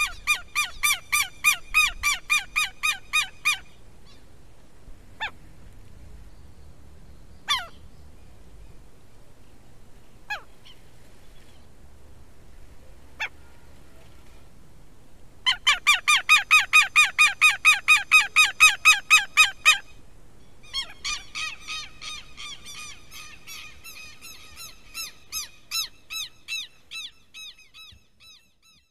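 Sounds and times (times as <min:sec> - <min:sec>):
lapwings shrill calling: 0:00.0 - 0:04.3, 0:07.5 - 0:07.8, 0:15.5 - 0:20.0, 0:20.6 - 0:28.9.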